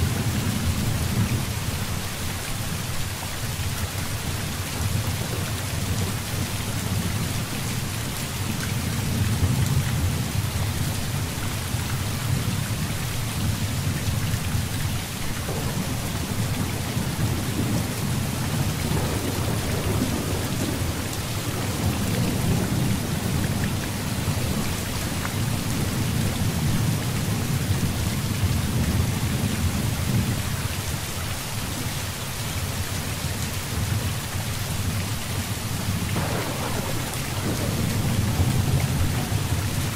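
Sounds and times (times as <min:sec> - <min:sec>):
heavy rain: 0:00.0 - 0:39.9
rolling thunder: 0:15.3 - 0:30.4, 0:36.0 - 0:39.9.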